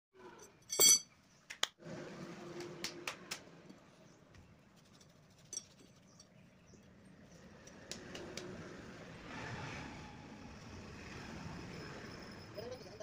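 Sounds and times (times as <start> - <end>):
metal scraping: 0.2 - 1.0
metal bar clinking: 0.4 - 1.1.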